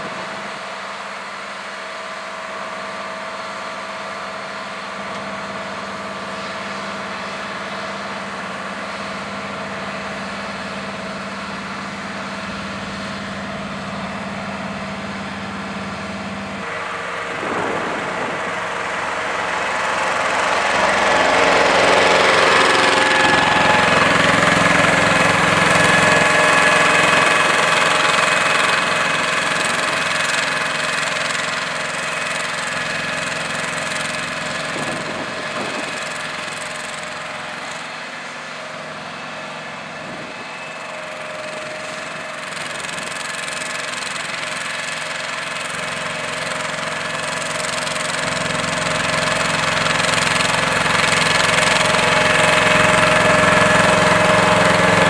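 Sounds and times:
diesel engine running: 0.0 - 55.0
high whines: 15.9 - 31.3.

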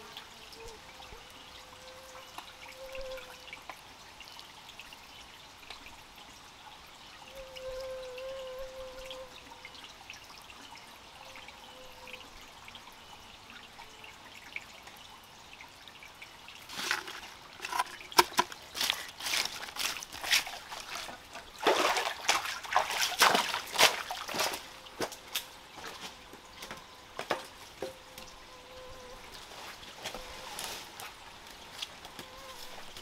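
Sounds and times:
hands splashing in wet mud: 18.3 - 24.6.

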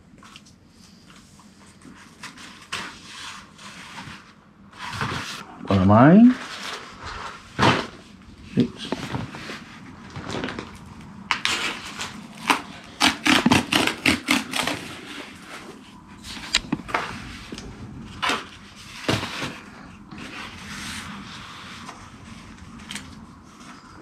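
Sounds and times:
cardboard scraping and ripping: 2.1 - 5.6, 6.2 - 24.0
package handling noises: 6.6 - 20.7.

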